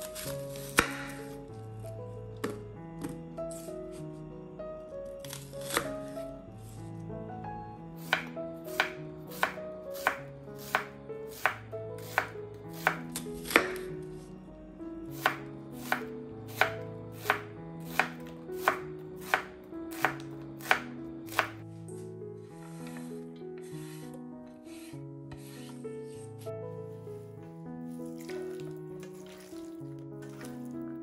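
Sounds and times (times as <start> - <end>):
knife chopping on wooden board: 0.1 - 1.1, 8.0 - 13.9, 15.1 - 21.6.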